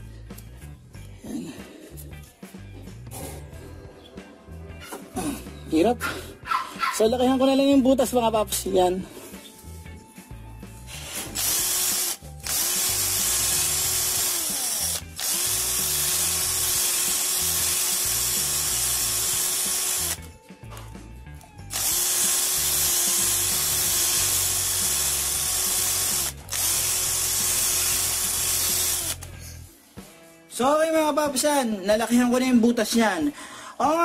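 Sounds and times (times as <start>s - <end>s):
cordless drill boring through rubber: 11.1s - 20.3s, 21.7s - 29.3s.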